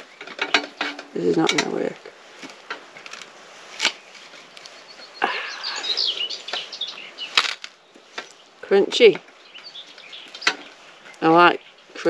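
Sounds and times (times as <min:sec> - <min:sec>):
crust cracking: 0:00.0 - 0:04.8, 0:06.5 - 0:08.4.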